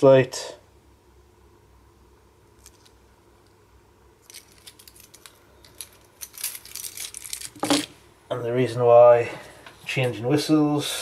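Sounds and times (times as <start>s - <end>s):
keys jingling: 4.2s - 7.9s.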